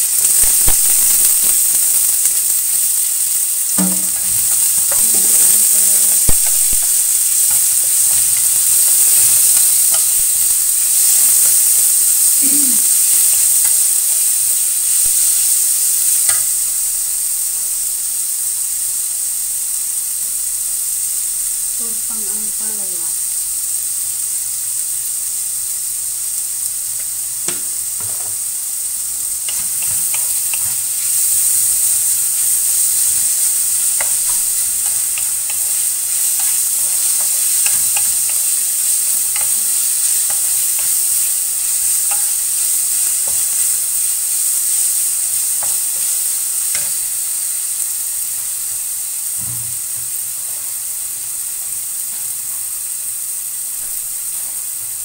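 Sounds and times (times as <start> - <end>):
vegetables sizzling in wok: 0.0 - 55.0
spatula tapping and scraping pan: 3.7 - 12.0, 16.2 - 16.6, 27.5 - 28.4, 29.4 - 43.8.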